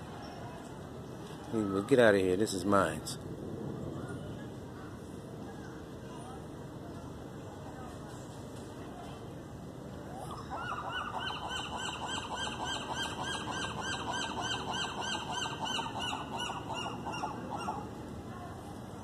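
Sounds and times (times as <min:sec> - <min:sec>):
gull calling: 0:10.5 - 0:17.9.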